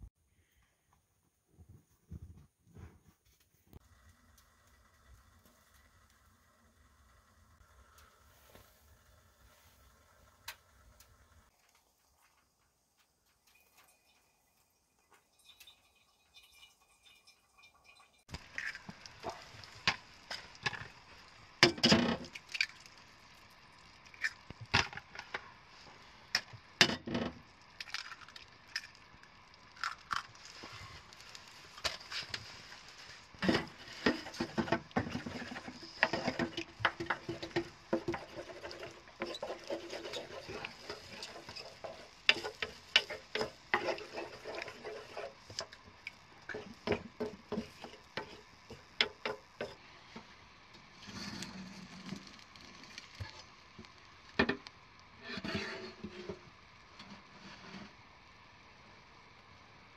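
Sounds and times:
faint frying sizzle: 3.7s - 59.9s
wooden spoon knocking in skillet: 33.3s - 49.8s.

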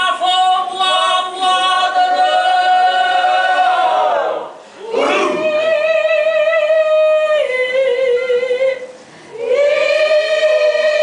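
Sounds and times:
voices chanting in unison: 0.9s - 5.9s, 9.4s - 11.0s.

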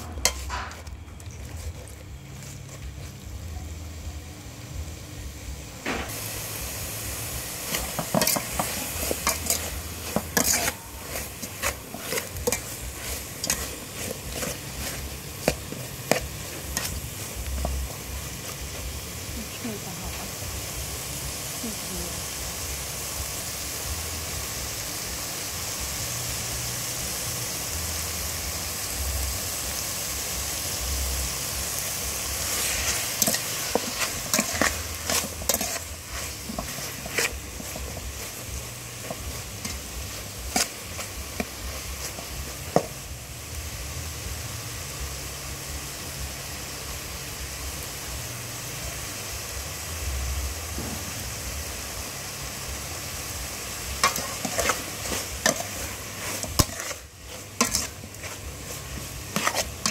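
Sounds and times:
metal ladle scraping a pot: 0.0s - 3.2s, 7.6s - 18.8s, 32.5s - 42.9s, 54.0s - 59.9s
meat sizzling in a pot: 0.0s - 59.9s.

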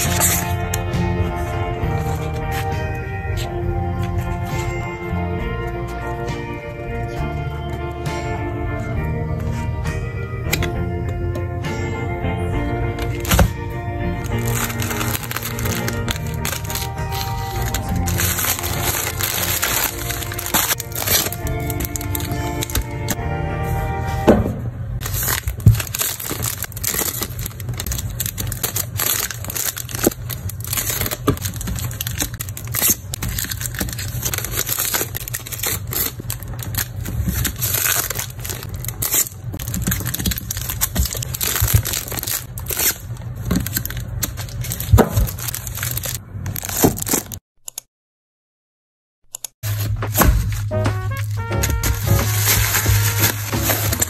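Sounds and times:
plastic covers crinkling: 0.0s - 4.8s, 13.0s - 13.6s, 14.2s - 23.2s, 25.0s - 47.4s, 49.7s - 54.0s.

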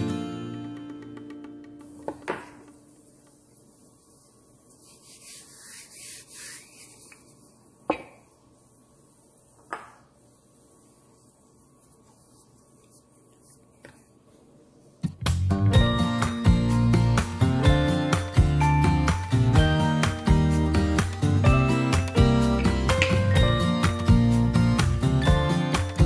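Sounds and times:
knocks on wooden board: 2.0s - 2.8s
hands rubbing dough: 3.5s - 7.8s, 10.5s - 14.3s.

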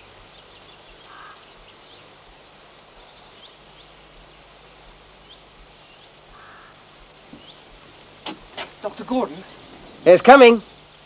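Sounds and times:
low bird call: 0.0s - 2.2s, 5.2s - 7.8s
steady outdoor hiss: 0.0s - 11.0s.

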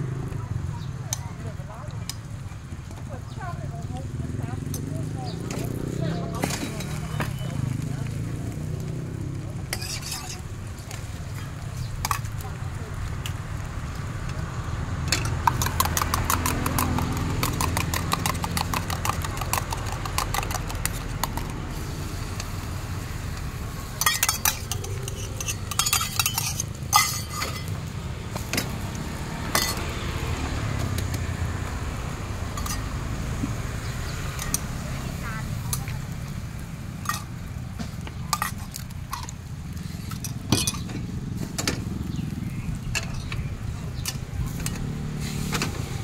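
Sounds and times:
utensils clinking against cookware: 6.3s - 7.6s, 9.7s - 10.5s, 15.1s - 21.5s, 23.9s - 27.8s, 29.5s - 29.8s, 32.6s - 33.0s, 34.3s - 34.8s, 37.0s - 41.8s, 42.9s - 45.7s
spoon beating eggs in steel cup: 15.4s - 21.5s, 24.0s - 27.6s.

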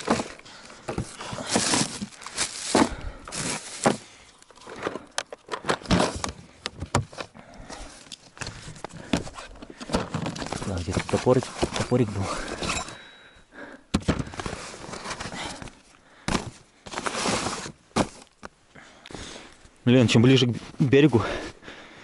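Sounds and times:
plastic box knocking and scraping: 0.0s - 4.0s, 4.7s - 7.3s, 8.8s - 12.3s, 13.9s - 15.4s
plastic bags rustling: 0.0s - 6.3s, 8.5s - 12.6s, 14.2s - 18.4s.

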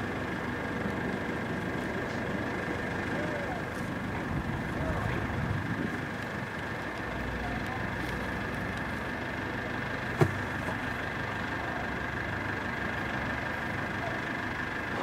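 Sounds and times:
outdoor rumble and hiss: 0.0s - 15.0s.

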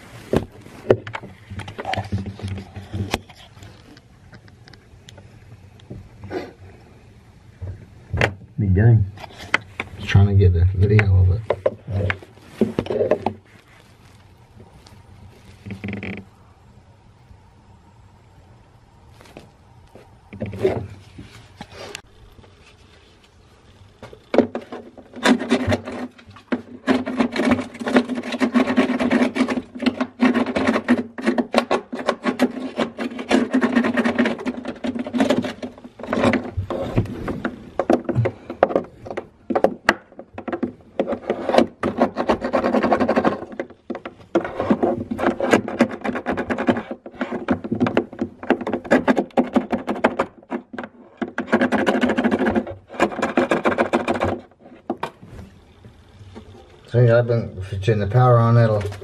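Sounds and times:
wire scraping in plastic drain hole: 24.0s - 55.4s.

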